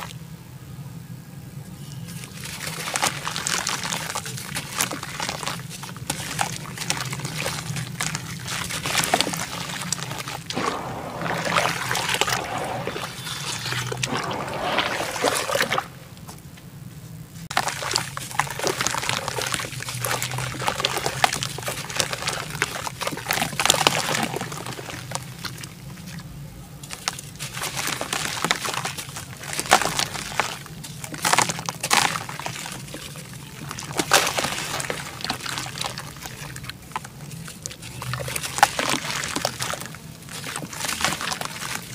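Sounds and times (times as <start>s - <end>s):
crackly crunch of dirt: 2.0s - 26.3s, 26.9s - 41.9s
dirt splashing into water: 2.6s - 16.2s, 27.1s - 37.1s, 37.7s - 41.9s.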